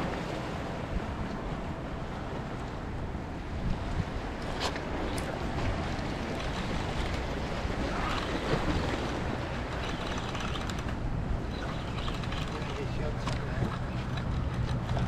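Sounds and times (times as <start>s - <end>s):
wind rumbling on microphone: 0.0s - 15.0s
small waves washing against rocks: 3.6s - 15.0s.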